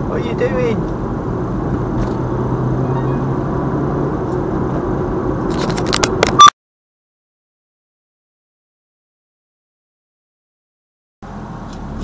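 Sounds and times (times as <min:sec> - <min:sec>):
car engine and tyre rumble: 0:00.0 - 0:06.5, 0:11.2 - 0:12.0.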